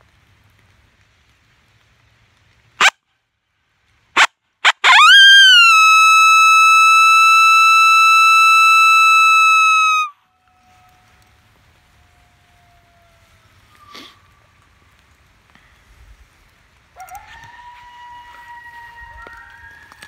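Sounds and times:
coyote call howl: 4.8 - 13.8, 17.0 - 20.0.

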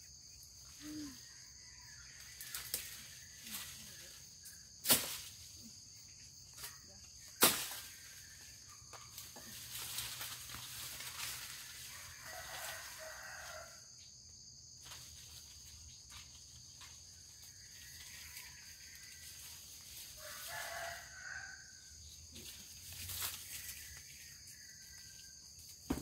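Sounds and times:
insects droning: 0.0 - 26.0
rooster crowing: 11.9 - 14.0, 20.2 - 22.0.

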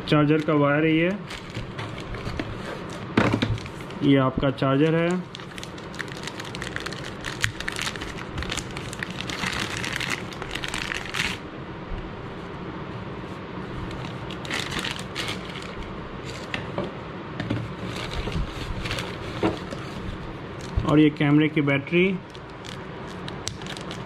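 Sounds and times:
plastic bag crinkling: 0.4 - 2.4, 4.9 - 11.4, 13.9 - 16.5, 17.8 - 19.8, 22.2 - 24.0.

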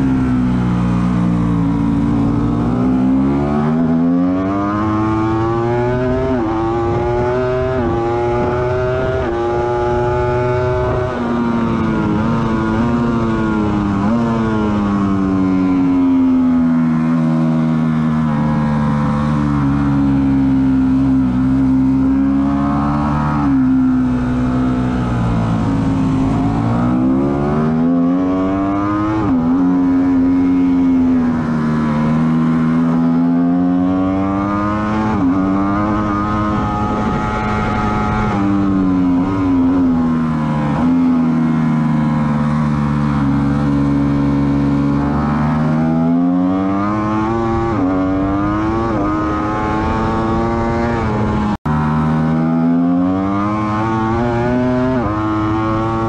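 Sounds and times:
motorcycle engine revving: 0.0 - 56.0
wind rush: 34.7 - 41.3.

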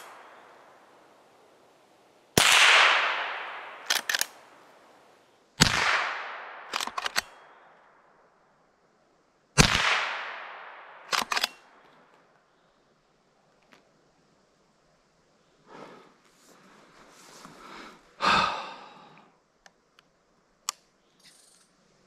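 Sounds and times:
rifle shots echoing: 2.4 - 4.7, 5.6 - 8.0, 9.6 - 11.8.

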